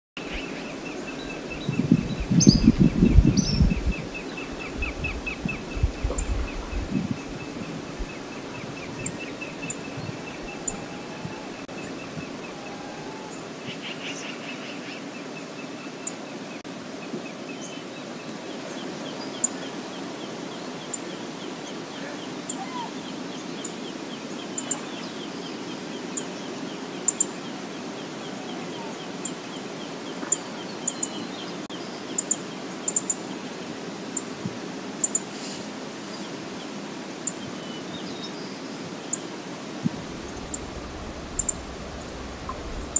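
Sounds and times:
river rushing: 0.2 - 42.9
high bird chirps: 40.1 - 42.9.

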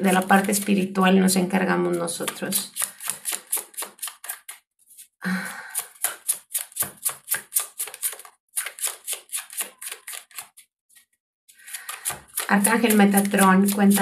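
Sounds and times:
cards being shuffled: 2.2 - 5.1, 5.8 - 14.0.

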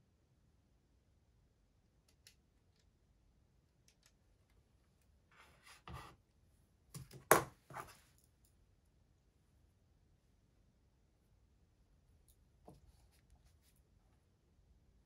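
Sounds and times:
soft sliding rub on desk: 5.3 - 6.2
objects knocking on desktop: 7.0 - 7.9.

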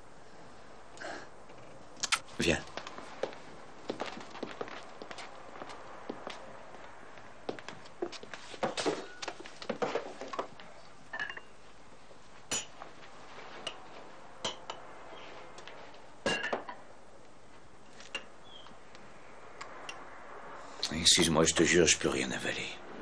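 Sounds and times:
china tableware clinking: 11.2 - 11.5, 12.5 - 12.8.

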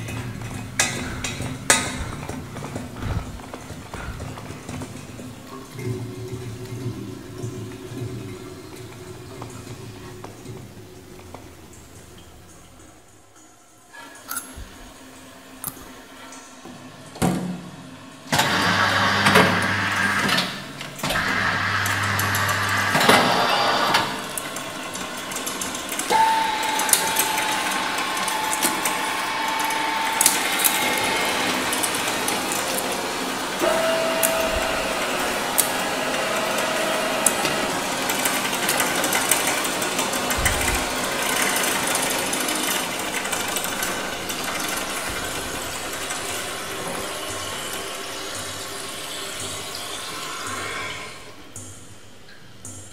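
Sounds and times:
dense mechanical clatter: 0.0 - 12.0, 18.3 - 49.7.

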